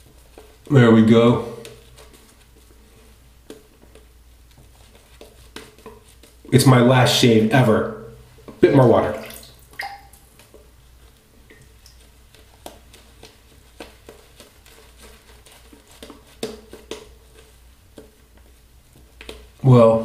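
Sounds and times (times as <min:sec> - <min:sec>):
wet brushing of shaving lather: 0:11.9 - 0:18.7.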